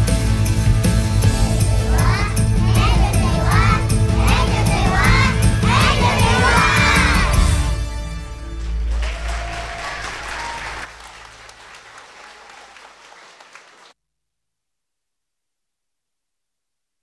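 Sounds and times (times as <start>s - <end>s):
audience applauding: 8.1s - 14.0s.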